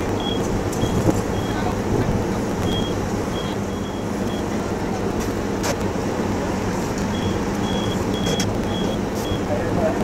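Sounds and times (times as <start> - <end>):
diesel engine running: 0.0 - 10.0
high-pitched warning beeps: 0.2 - 1.8, 2.6 - 4.5, 7.1 - 9.5.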